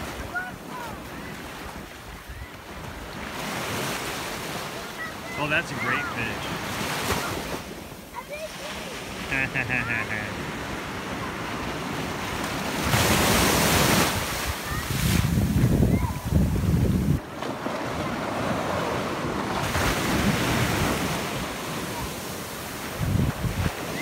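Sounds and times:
small waves washing on sand: 0:00.0 - 0:24.0
wind rumbling on microphone: 0:12.8 - 0:17.2, 0:22.9 - 0:24.0.

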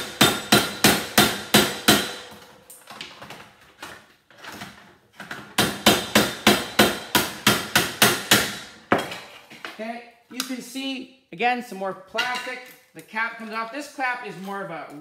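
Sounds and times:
hammer striking metal: 0:00.0 - 0:02.4, 0:05.6 - 0:09.1.

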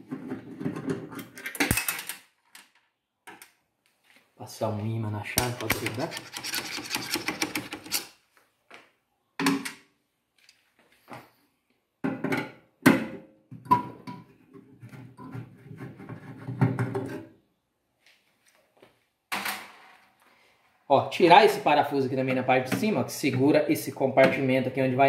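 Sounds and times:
screwdriver scrapes on metal: 0:05.6 - 0:08.1.

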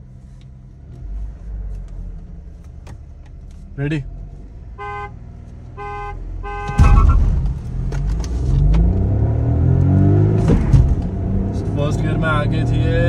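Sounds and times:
car horn toots: 0:04.8 - 0:07.4
car engine revving hard: 0:06.6 - 0:13.0.

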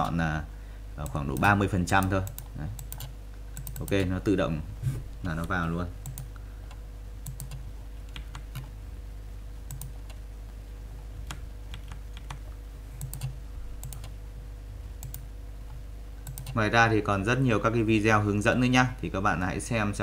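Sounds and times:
steady low hum: 0:00.0 - 0:20.0
mouse and keyboard clicks: 0:13.0 - 0:14.1.

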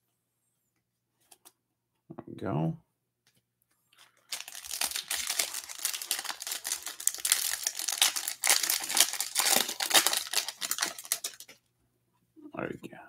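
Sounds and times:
foil wrapper tearing and crinkling: 0:04.0 - 0:11.6.

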